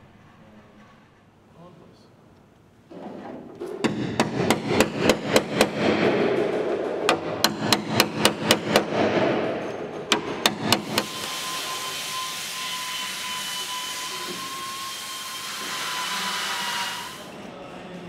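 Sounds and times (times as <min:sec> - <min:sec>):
steady background noise: 0:00.0 - 0:18.0
hammer striking chisel: 0:03.7 - 0:11.4.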